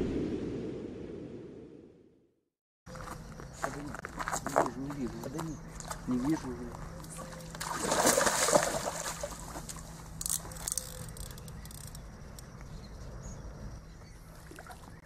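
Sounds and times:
fish splashing in water: 7.2s - 9.9s.

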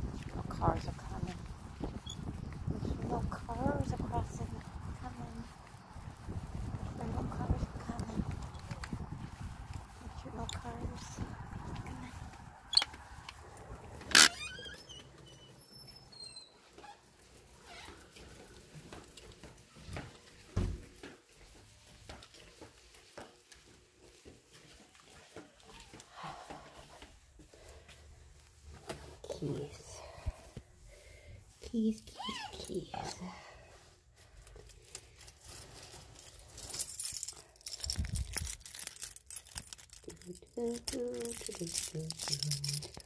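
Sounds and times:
rustling handling noise: 0.0s - 14.4s, 16.6s - 43.0s
footsteps: 0.0s - 43.0s
keys jangling: 34.8s - 43.0s.

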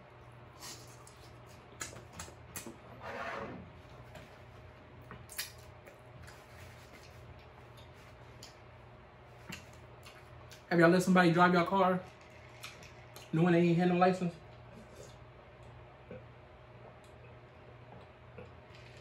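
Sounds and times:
wet lip-smacking clicks: 1.8s - 2.7s, 5.3s - 6.0s, 9.5s - 10.7s, 12.5s - 13.3s
chewing: 5.0s - 8.7s, 9.3s - 10.7s, 12.1s - 13.3s, 14.7s - 19.0s
slurp: 17.2s - 19.0s.

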